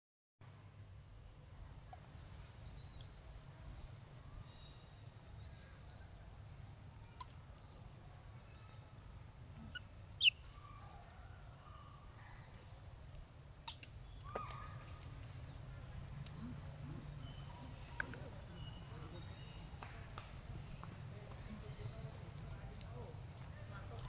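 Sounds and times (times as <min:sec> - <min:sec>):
high bird chirps: 0:09.6 - 0:10.6.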